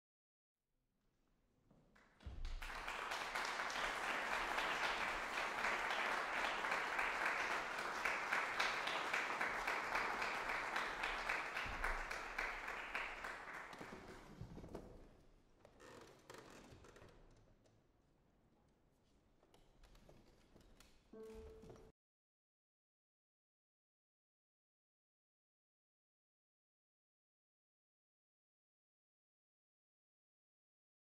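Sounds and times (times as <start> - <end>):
audience applauding: 2.3 - 14.5.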